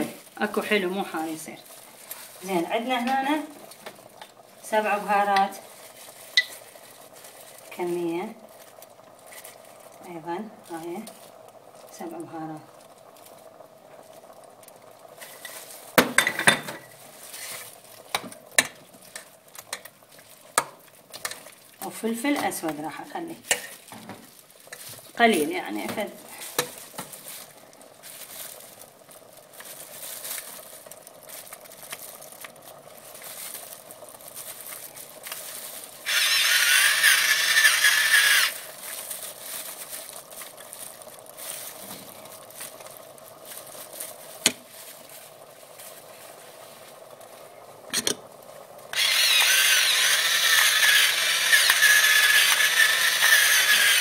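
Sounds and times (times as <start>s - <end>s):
electric pepper mill grinding: 28.4s - 44.6s, 48.9s - 54.0s.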